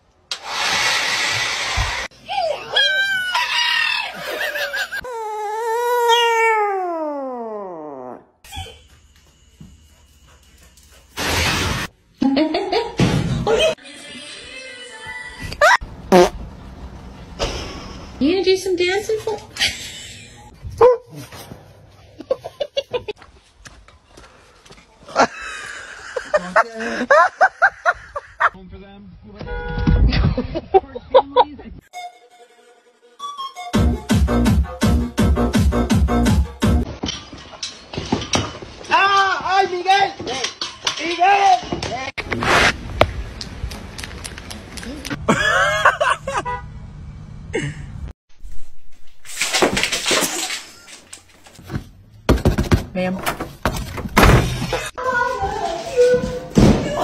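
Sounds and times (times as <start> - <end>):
small dog howling: 5.1 - 7.9.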